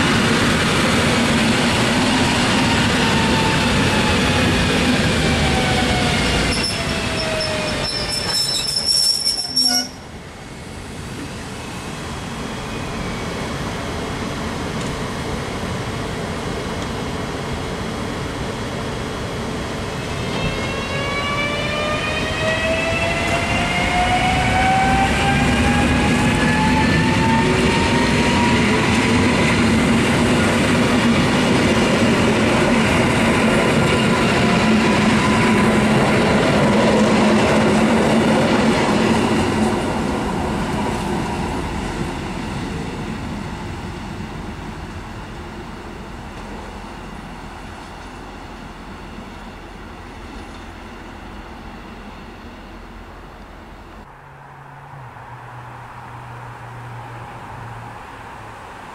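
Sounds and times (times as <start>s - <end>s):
train wheels on rail: 0.0s - 58.9s
high squeal: 5.6s - 10.0s.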